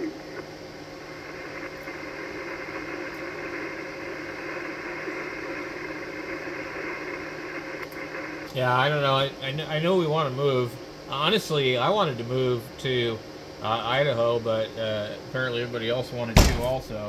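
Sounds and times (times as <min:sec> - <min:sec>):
faint low hum: 0:00.0 - 0:17.0
radio static hiss: 0:00.0 - 0:17.0.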